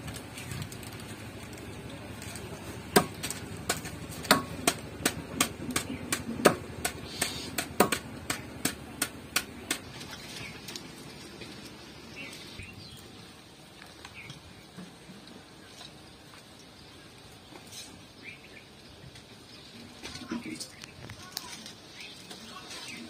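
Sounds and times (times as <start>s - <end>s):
knife chopping on wooden block: 2.9s - 9.9s.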